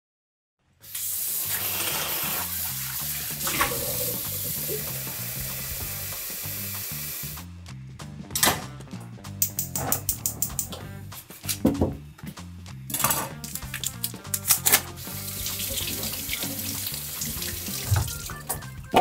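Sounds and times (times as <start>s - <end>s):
tap water running into metal pan: 0.9s - 7.4s, 12.9s - 19.0s.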